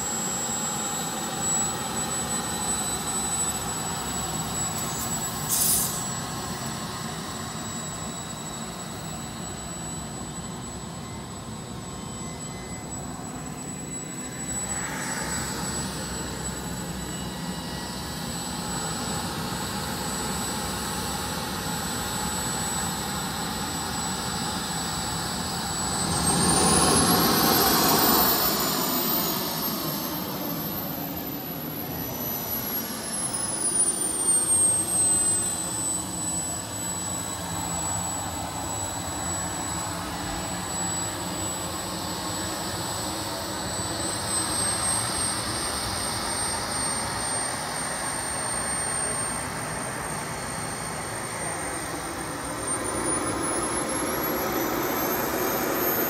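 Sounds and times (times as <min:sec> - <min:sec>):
model jet turbine whining: 0:00.0 - 0:56.0.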